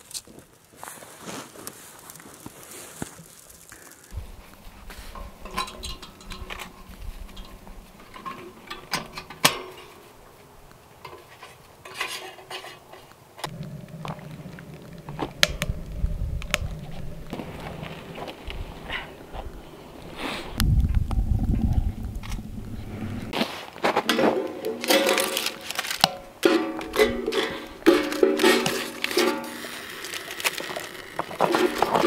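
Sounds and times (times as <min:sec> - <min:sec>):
metal stove clinks and knocks: 0:05.1 - 0:10.1, 0:24.1 - 0:29.6
low rumble: 0:13.5 - 0:23.4.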